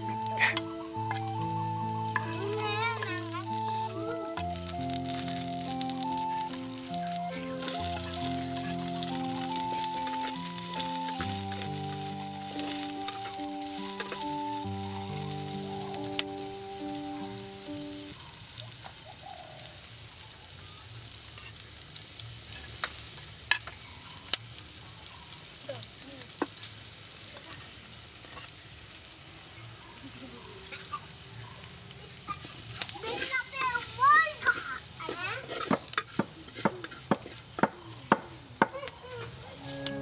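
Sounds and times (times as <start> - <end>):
tune of stepped notes: 0.0 - 18.1, 39.6 - 40.0
oil sizzling in a pot: 0.0 - 40.0.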